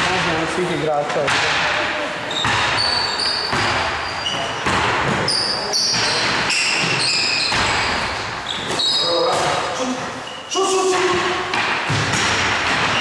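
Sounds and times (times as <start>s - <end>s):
shoes squeaking on court: 2.2s - 13.0s
basketball bouncing on floor: 2.3s - 9.5s, 10.9s - 13.0s.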